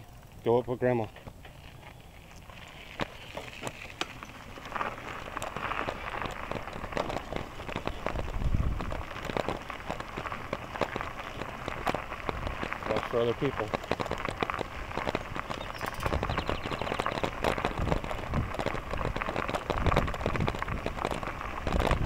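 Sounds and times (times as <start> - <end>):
bicycle tyres on gravel: 0.0 - 22.0.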